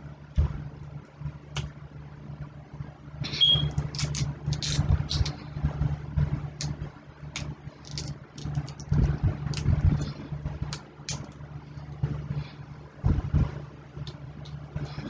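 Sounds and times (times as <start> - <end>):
steady low hum: 0.0 - 15.0
crab shells cracking: 3.8 - 5.3, 7.4 - 9.7, 10.7 - 11.4.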